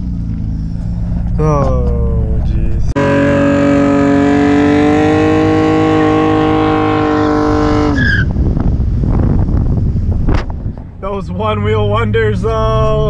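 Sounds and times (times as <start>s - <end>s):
road and wind noise: 0.0s - 13.0s
car engine revving hard: 3.0s - 8.3s.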